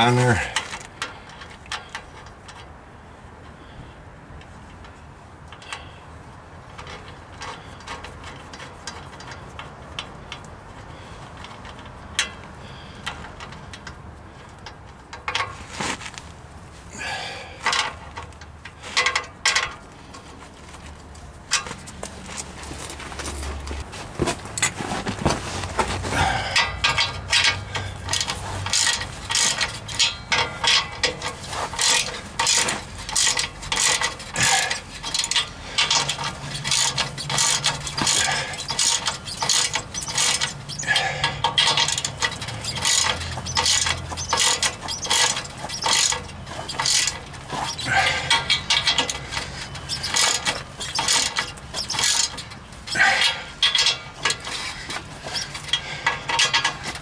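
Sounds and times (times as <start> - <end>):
ratchet wrench clicking: 26.4 - 57.0.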